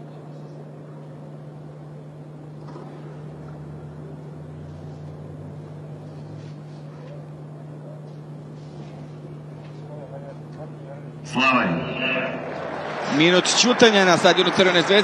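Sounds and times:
faint crowd murmur: 0.0s - 11.7s
steady low hum: 0.0s - 15.0s.

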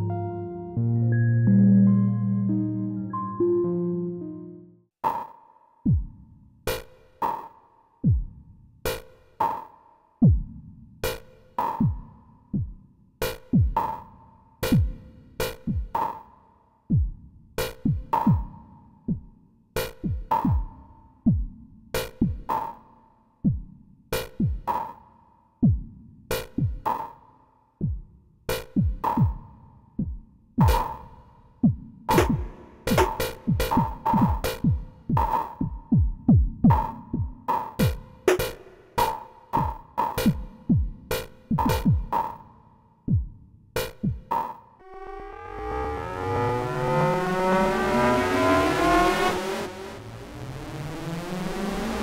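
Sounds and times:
synthesized kick drums: 5.9s - 6.2s, 8.0s - 8.4s, 10.2s - 10.6s, 11.8s - 12.8s, 14.6s - 15.0s, 17.8s - 19.3s, 20.0s - 22.5s, 25.6s - 26.0s, 28.7s - 38.0s, 39.6s - 42.4s, 43.1s - 44.3s.

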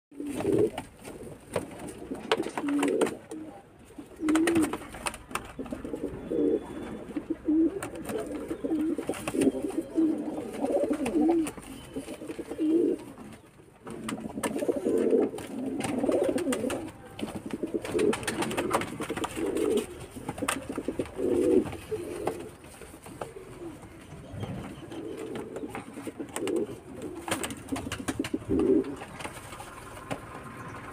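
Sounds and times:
pigeons cooing: 0.1s - 30.9s
wings flapping: 4.2s - 6.0s, 13.9s - 23.8s, 24.4s - 30.6s.

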